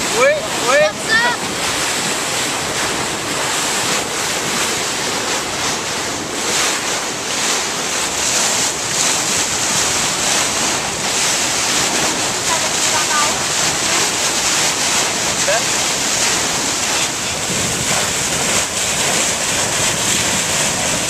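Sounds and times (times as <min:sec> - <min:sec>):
water hissing along boat hull: 0:00.0 - 0:21.0
wind buffeting microphone: 0:00.0 - 0:21.0.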